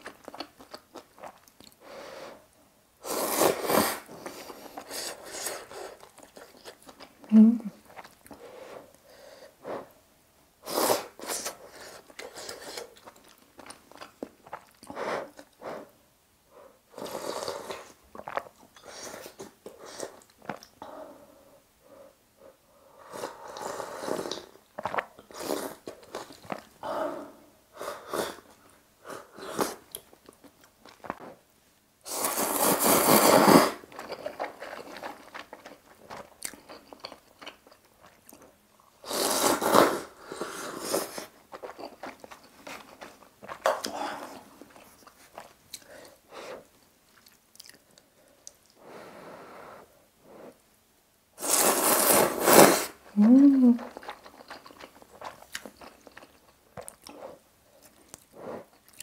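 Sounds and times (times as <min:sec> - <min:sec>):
loud noodle slurps: 0:32.1 - 0:33.8, 0:39.0 - 0:41.3, 0:51.4 - 0:53.0
chewing and smacking: 0:47.1 - 0:48.8, 0:53.8 - 0:57.2, 0:57.8 - 0:59.0.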